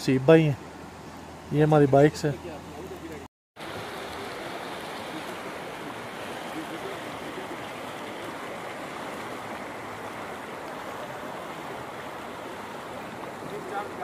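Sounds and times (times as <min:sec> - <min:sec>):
river rushing over stones: 0:03.6 - 0:14.0.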